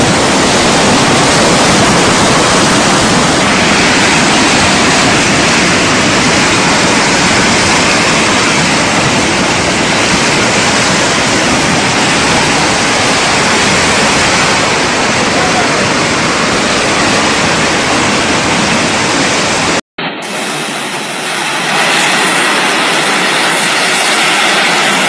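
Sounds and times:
flood water rushing: 0.0 - 25.0.

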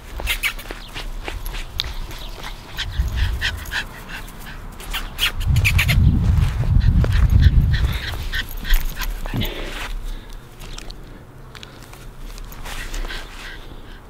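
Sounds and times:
low rumble on microphone: 2.0 - 4.7, 5.3 - 9.8.

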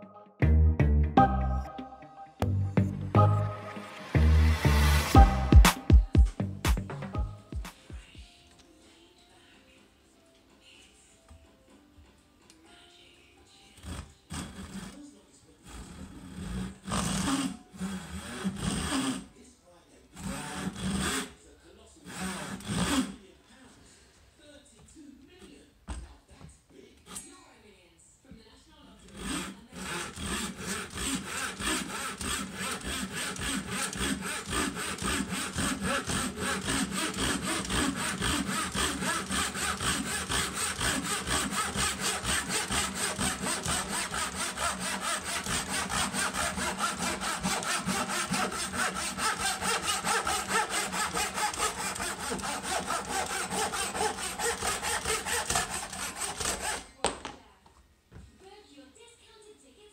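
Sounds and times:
hand saw cutting wood: 4.5 - 5.8, 13.8 - 19.3, 20.2 - 21.4, 22.0 - 23.3, 29.0 - 57.0.

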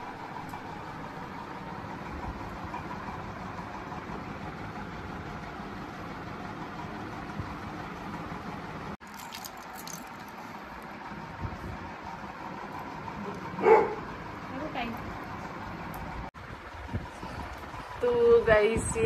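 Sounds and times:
mechanical hum: 0.0 - 19.0
light clinks: 9.0 - 10.5.

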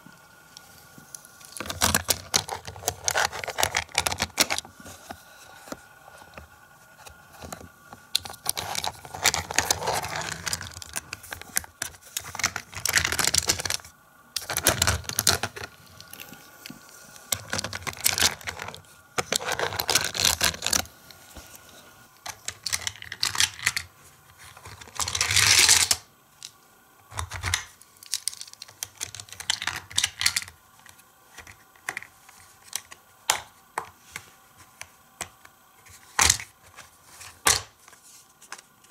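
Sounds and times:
plastic toy parts clicking and rattling: 1.4 - 4.7, 7.0 - 16.3, 17.3 - 20.9, 22.2 - 33.5.

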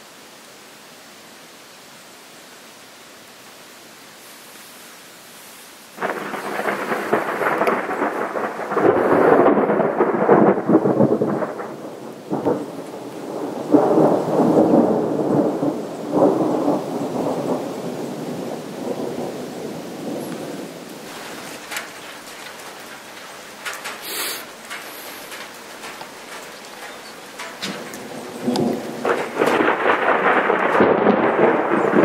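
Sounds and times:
steady hiss: 0.0 - 32.0
thunder clap and rumble: 6.0 - 24.0, 24.7 - 32.0.

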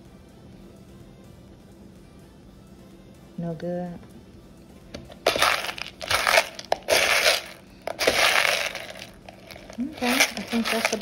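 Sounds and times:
dry beans raked by hand: 5.3 - 11.0.

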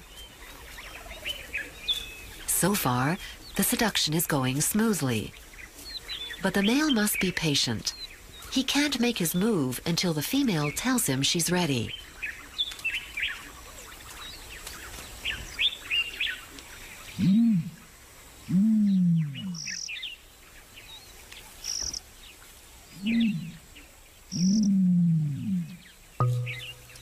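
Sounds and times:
birds chirping high: 0.0 - 17.3, 18.9 - 24.8, 25.6 - 27.0
low falling bird calls: 22.9 - 27.0.

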